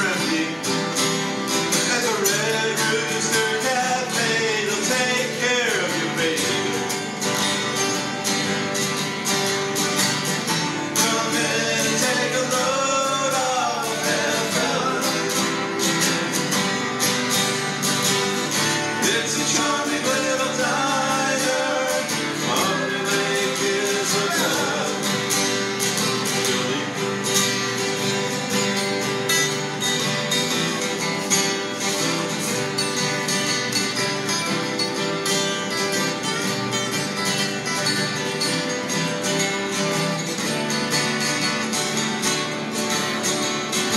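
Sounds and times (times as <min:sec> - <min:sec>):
men singing: 0:00.0 - 0:08.2, 0:10.5 - 0:17.3, 0:18.0 - 0:28.4
acoustic guitars strumming: 0:00.0 - 0:43.9.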